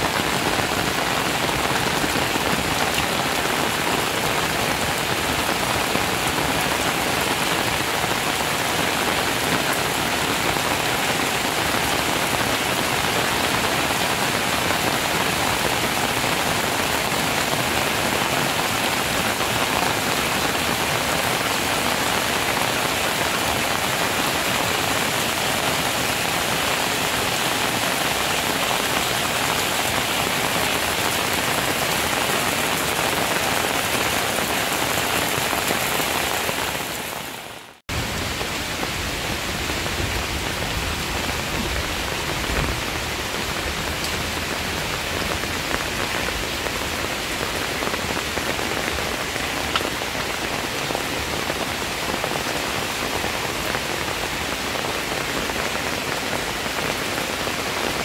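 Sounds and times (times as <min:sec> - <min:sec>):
rain falling on leaves: 0:00.0 - 0:58.0.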